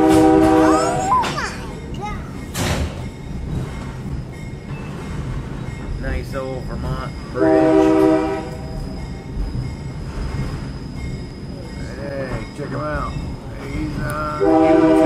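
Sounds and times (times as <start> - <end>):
locomotive horn blast: 0.0 - 1.2, 7.4 - 8.8, 14.4 - 15.0
train rumbling on rails: 0.0 - 15.0.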